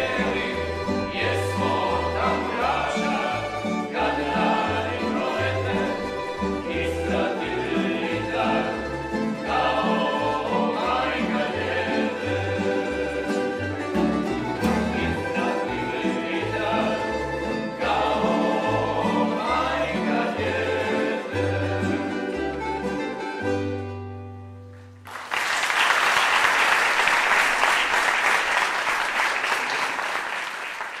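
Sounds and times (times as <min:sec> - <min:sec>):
plucked string orchestra: 0:00.0 - 0:25.0
audience applauding: 0:24.8 - 0:31.0.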